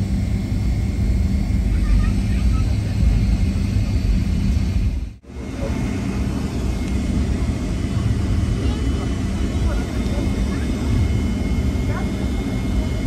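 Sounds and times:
jet engine and cabin rumble: 0.0s - 13.0s.

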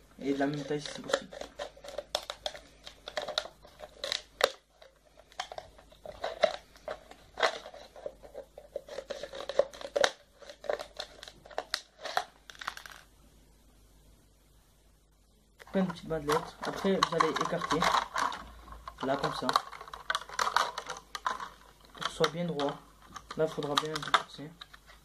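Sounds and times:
plastic crinkling: 0.2s - 13.1s, 15.6s - 25.0s.

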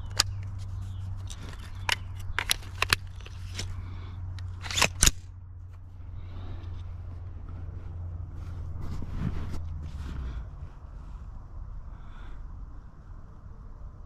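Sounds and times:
rifle action clicking: 1.3s - 3.8s, 4.4s - 5.3s.

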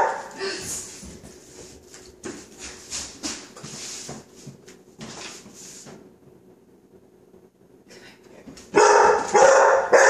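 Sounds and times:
light knocks and scuffles: 0.6s - 6.0s.

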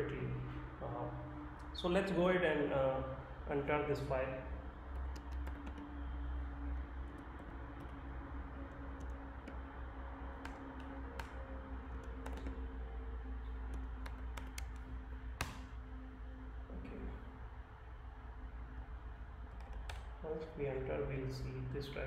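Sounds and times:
low steady hum: 0.0s - 22.0s
computer keyboard typing: 4.7s - 15.8s, 19.4s - 20.2s.

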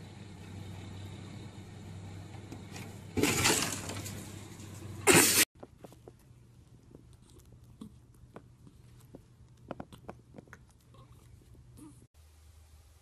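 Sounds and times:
steady low hum: 0.0s - 13.0s
crash of something breaking: 3.2s - 4.2s.

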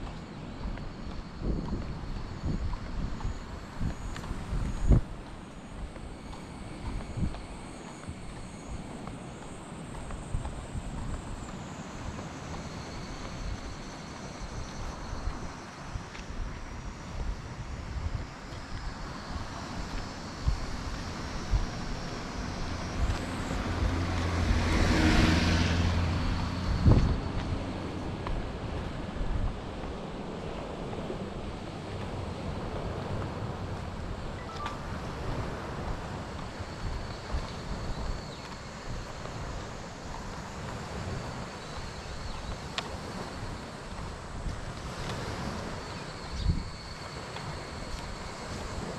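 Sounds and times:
wind buffeting microphone: 0.0s - 48.9s
van driving past: 22.1s - 28.3s
faint high-pitched tone: 34.3s - 35.1s.

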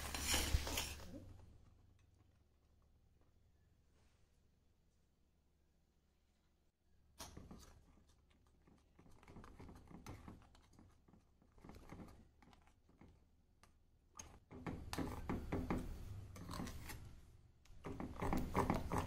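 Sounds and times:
spoon scraping steel pan: 0.0s - 1.1s.

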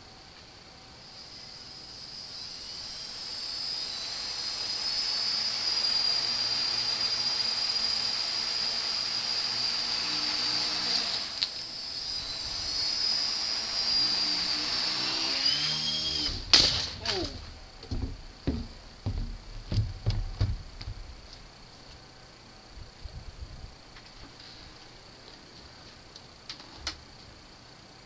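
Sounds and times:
quadcopter motors whining: 0.8s - 18.1s.

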